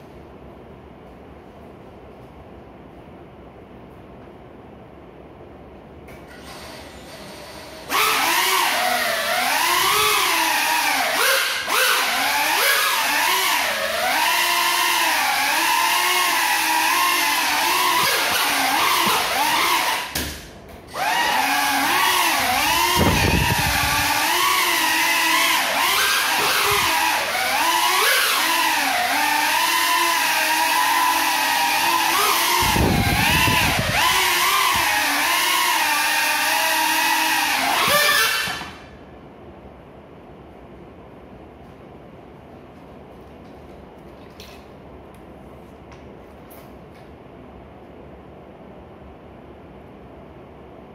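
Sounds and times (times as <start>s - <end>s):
quadcopter motors whining: 6.4s - 20.3s, 20.9s - 38.9s.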